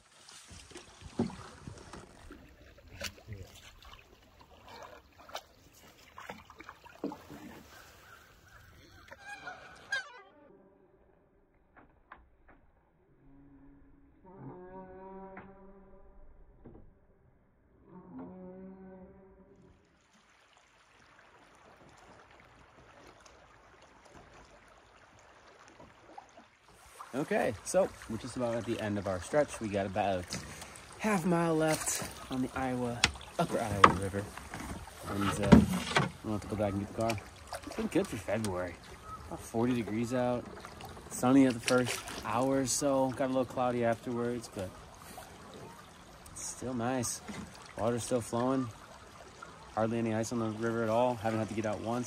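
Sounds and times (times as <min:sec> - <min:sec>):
paddle splashing through water: 0:00.0 - 0:10.0, 0:19.8 - 0:52.0
paddle knocking canoe hull: 0:00.6 - 0:03.9, 0:27.4 - 0:42.4.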